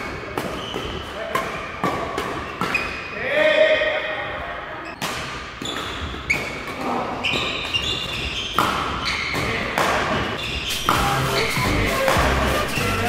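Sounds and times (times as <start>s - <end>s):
shoes squeaking on floor: 0.0s - 3.2s, 4.8s - 13.0s
racket striking shuttlecock: 5.0s - 12.4s.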